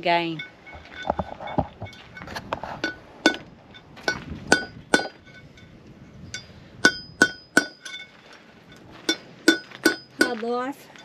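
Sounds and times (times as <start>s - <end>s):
hammer striking metal punch: 2.8s - 5.4s, 6.8s - 8.1s.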